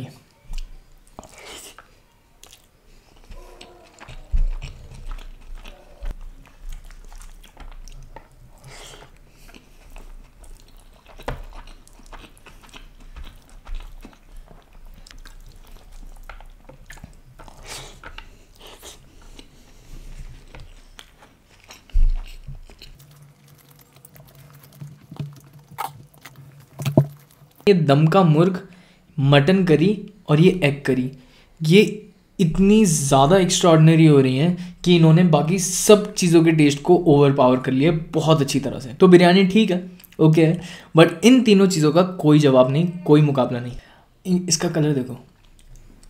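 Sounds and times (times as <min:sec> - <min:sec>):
chewing and smacking: 0:00.5 - 0:27.7, 0:45.3 - 0:46.0.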